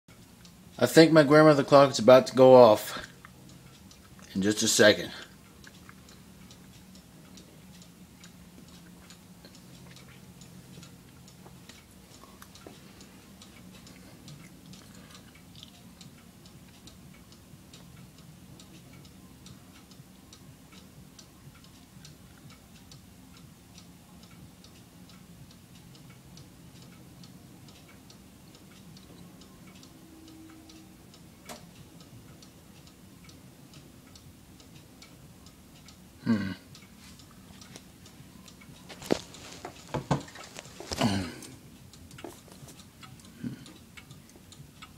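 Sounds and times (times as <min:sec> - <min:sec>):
clock ticking: 0:00.1 - 0:44.9.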